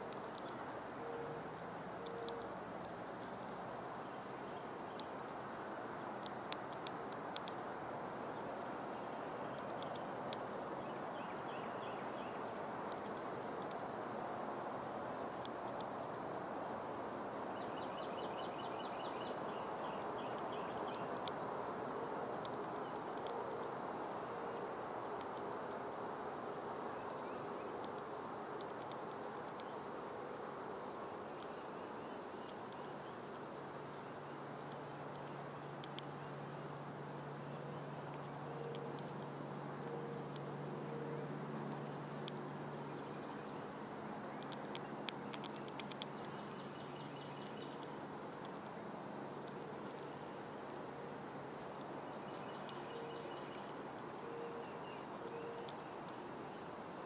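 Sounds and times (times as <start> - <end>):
background hiss: 0.0 - 57.0
crickets trilling: 0.0 - 57.0.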